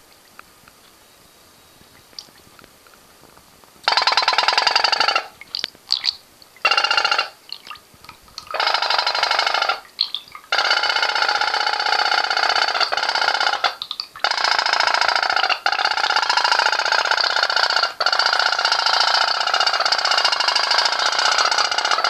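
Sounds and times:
toy steam boat engine buzzing: 3.9s - 5.3s, 6.7s - 7.4s, 8.5s - 9.9s, 10.5s - 22.0s.

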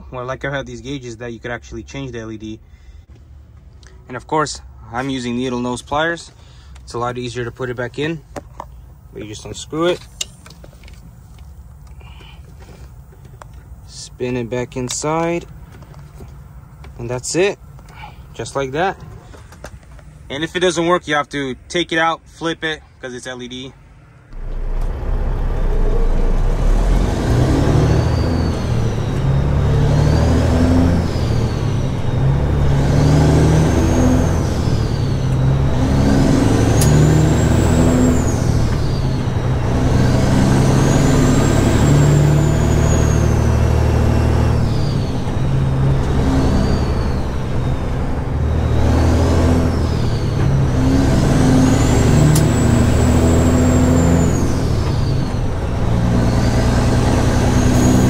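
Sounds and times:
diesel truck engine: 0.0s - 58.0s
turbo whistle: 26.5s - 49.0s.

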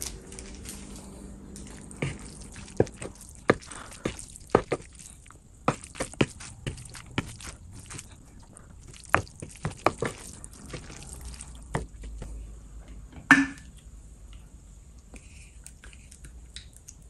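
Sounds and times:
fork stirring sticky noodles: 0.0s - 12.3s.

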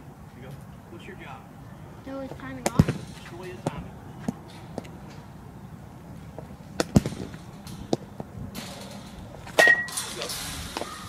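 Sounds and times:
baseball bat cracking ball: 2.6s - 5.0s, 6.4s - 8.3s, 9.5s - 10.0s
metal bat ping: 9.6s - 10.1s.

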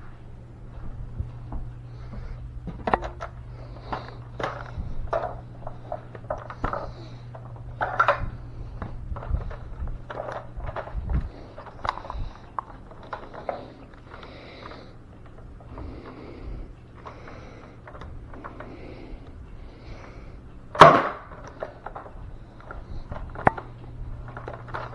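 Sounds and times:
steady low hum: 0.0s - 24.9s.

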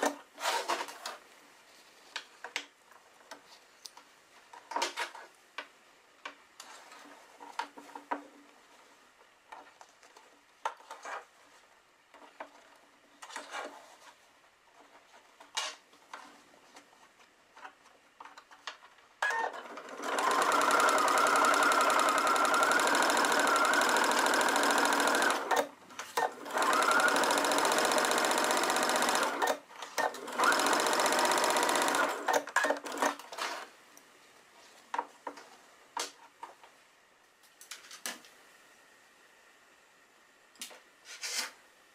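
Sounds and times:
electric sewing machine stitching: 19.2s - 33.7s.

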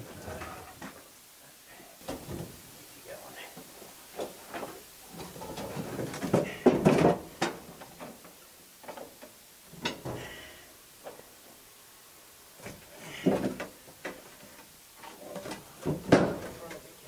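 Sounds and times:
wooden planks knocking: 4.2s - 8.2s, 15.4s - 16.8s.

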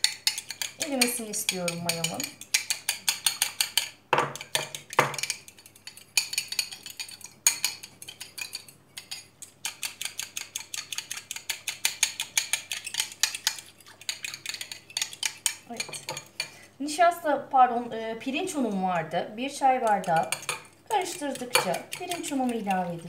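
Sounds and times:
fork clinking against bowl: 19.8s - 22.8s.

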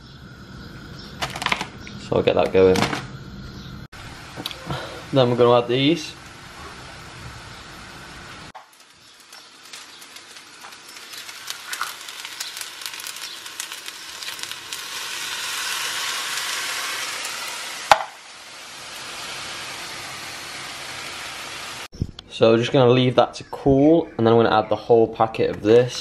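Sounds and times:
food sizzling in a pan: 4.0s - 21.9s
sharp knock: 17.9s - 18.2s.

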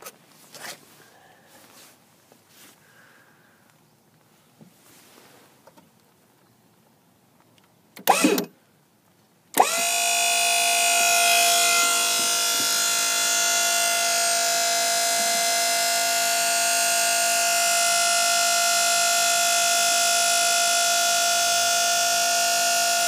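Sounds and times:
hydraulic pump motor whine: 8.0s - 8.5s, 9.6s - 23.0s.

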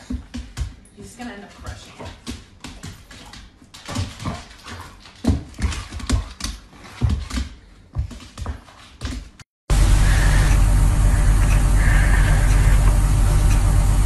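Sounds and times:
dog paws scrabbling on hardwood floor: 0.0s - 9.4s.

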